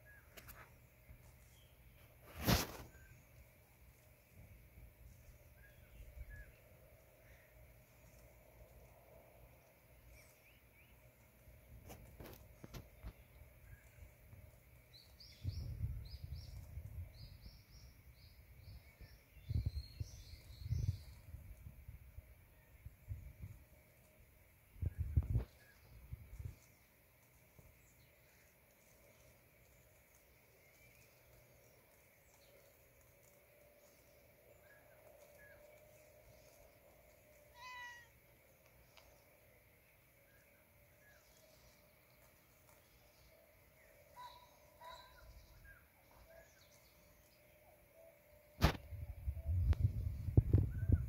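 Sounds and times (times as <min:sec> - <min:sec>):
small bird chirping: 0:00.0 - 0:21.7, 0:22.5 - 0:51.0
kitten meowing: 0:37.5 - 0:38.1.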